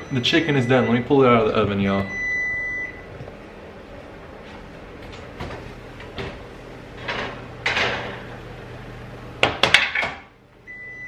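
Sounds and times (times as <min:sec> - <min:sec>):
oven door opening: 0:04.4 - 0:08.5
metal baking tray clattering: 0:07.0 - 0:08.3.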